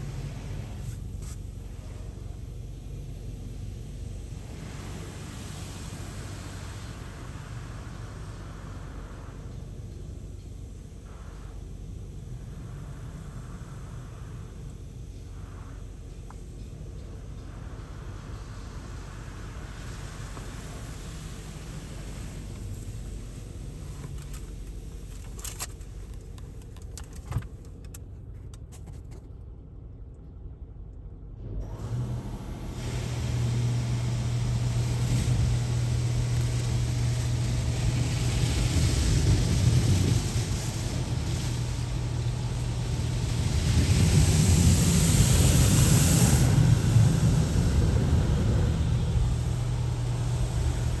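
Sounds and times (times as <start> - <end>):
spray rushing over car: 0.0 - 9.8, 10.7 - 26.4, 32.4 - 51.0
machine hum: 31.4 - 51.0.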